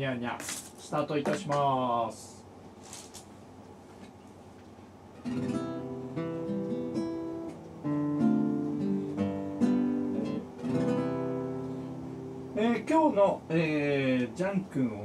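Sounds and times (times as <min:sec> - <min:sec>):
background music melody: 0:05.2 - 0:14.4.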